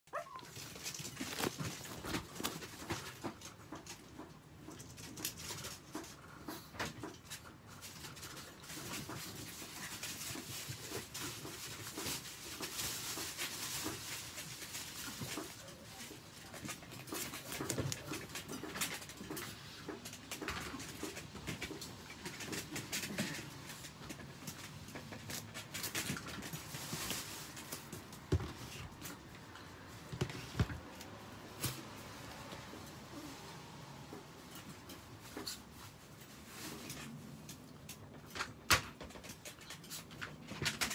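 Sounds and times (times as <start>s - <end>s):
dogs whimpering: 0.1s - 0.6s
claws clicking and scratching: 0.2s - 33.2s, 34.1s - 40.9s.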